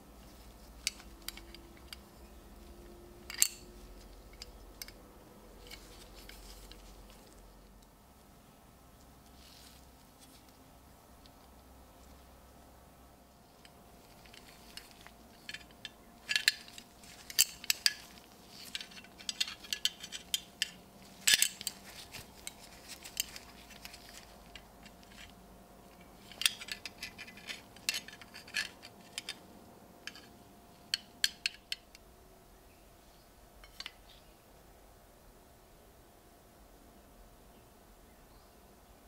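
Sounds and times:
metal buckles clicking and clinking: 0.3 - 5.0, 13.6 - 29.4, 30.0 - 32.0.

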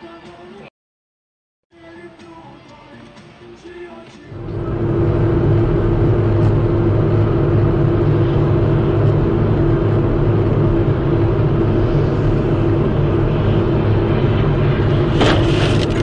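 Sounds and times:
constant low hum: 4.3 - 16.0
car engine and tyres on wet road: 4.5 - 16.0.

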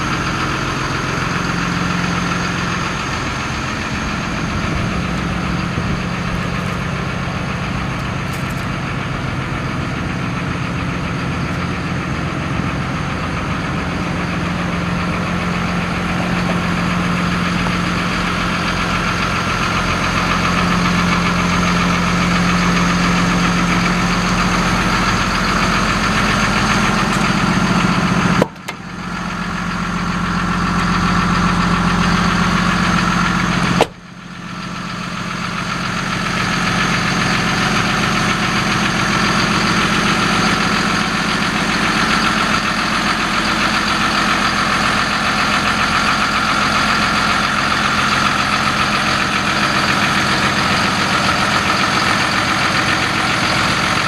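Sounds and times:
diesel engine idling: 0.0 - 54.0.

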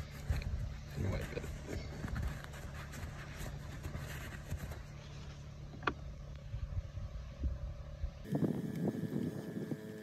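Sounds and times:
paper towel rubbing and scrunching: 0.0 - 5.4.

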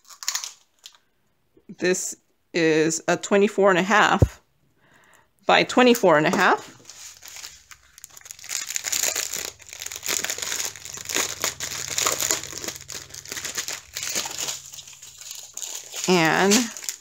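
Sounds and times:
plastic packaging crinkling: 0.0 - 1.1, 6.4 - 17.0.

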